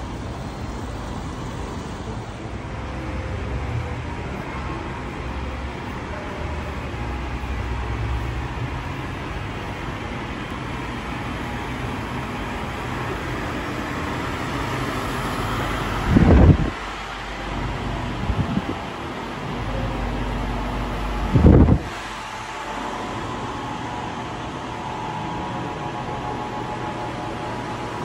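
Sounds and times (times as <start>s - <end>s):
air blast buffeting microphone: 7.0s - 27.0s.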